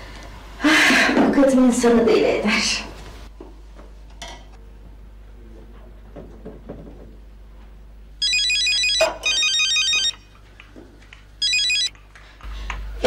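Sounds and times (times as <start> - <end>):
telephone ringing: 8.2 - 10.2, 11.4 - 11.9.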